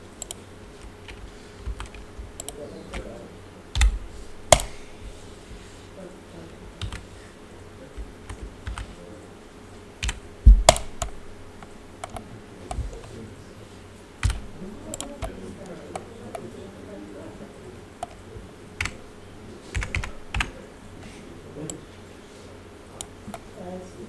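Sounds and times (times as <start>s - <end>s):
computer keyboard typing: 0.2s - 5.2s, 6.8s - 7.1s, 8.0s - 9.0s, 10.0s - 13.2s, 14.2s - 16.5s, 18.0s - 18.2s, 18.8s - 20.6s.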